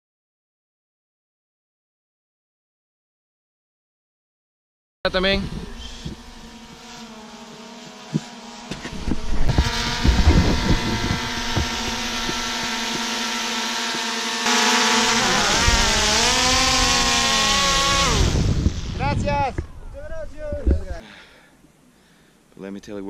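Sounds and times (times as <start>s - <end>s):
drone propellers whining: 5.1s - 21.0s
downdraft rushing noise: 8.8s - 13.1s.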